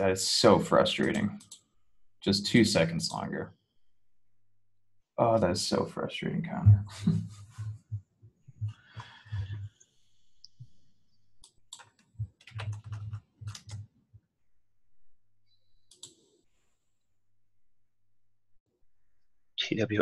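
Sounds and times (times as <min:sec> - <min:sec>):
computer keyboard typing: 0:00.9 - 0:01.6, 0:11.4 - 0:13.9.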